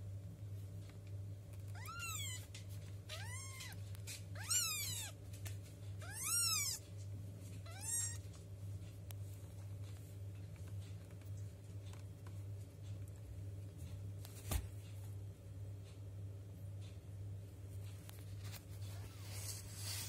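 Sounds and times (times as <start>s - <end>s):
kittens mewing: 1.7s - 2.5s, 3.1s - 5.2s, 6.0s - 6.8s, 7.6s - 8.2s.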